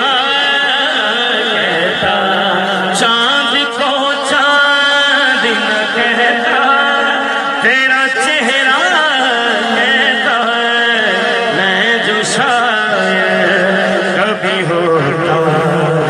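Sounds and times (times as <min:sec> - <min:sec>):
man singing into a microphone: 0:00.0 - 0:16.0.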